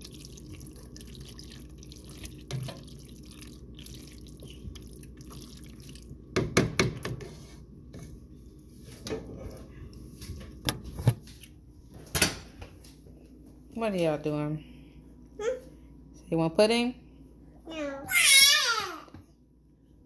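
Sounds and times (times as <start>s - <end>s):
sticky squelching of stirred food: 0.0s - 6.2s.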